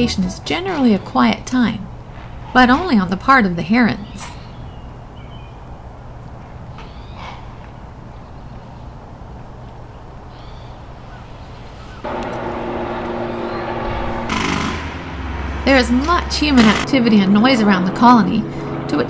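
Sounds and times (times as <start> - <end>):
faint bird calls: 6.7 - 9.1
motor-driven machine running: 12.0 - 16.9
low rumble: 12.0 - 19.0.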